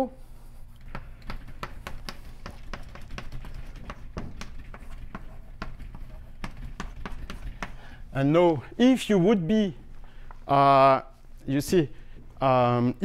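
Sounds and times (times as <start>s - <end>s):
low room hum: 0.0s - 13.0s
chalk tapping and scraping on blackboard: 0.7s - 8.0s.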